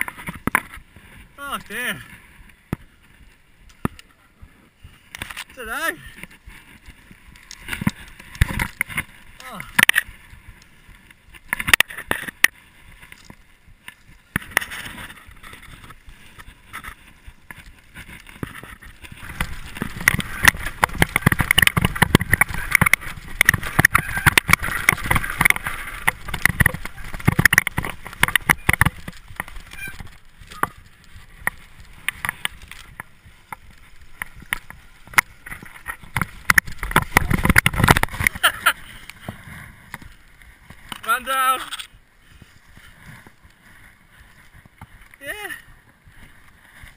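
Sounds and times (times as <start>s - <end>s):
bike rattling: 0.0s - 46.9s
tyres rumbling over dirt: 5.2s - 46.9s
sharp knocks over bumps: 14.3s - 41.1s.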